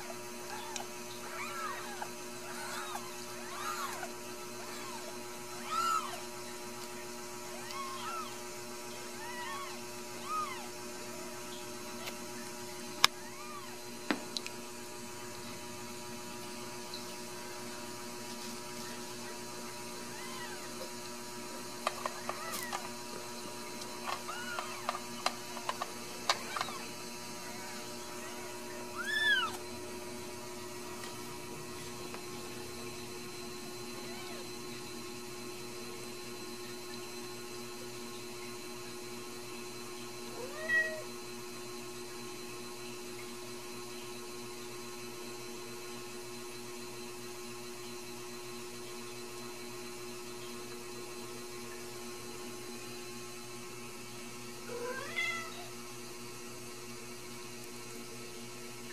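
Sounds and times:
kittens mewing: 0.0 - 13.8, 18.8 - 21.0, 21.9 - 23.0, 24.0 - 29.7, 33.8 - 34.7
steady low hum: 0.0 - 58.9.

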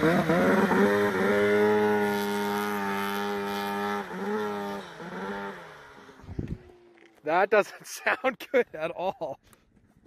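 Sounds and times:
snowmobile engine at high revs: 0.0 - 7.2.

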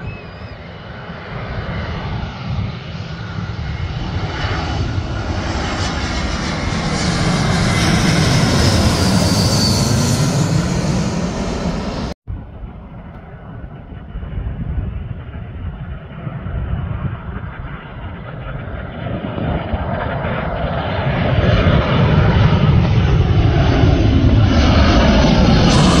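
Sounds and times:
jet airliner approaching: 0.0 - 26.0
jet airliner passing overhead: 0.0 - 26.0.

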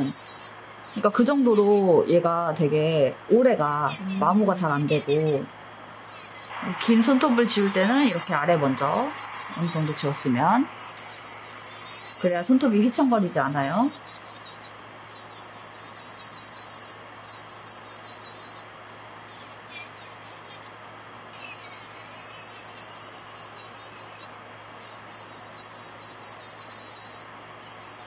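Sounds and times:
electric nail drill whining: 6.1 - 18.6.

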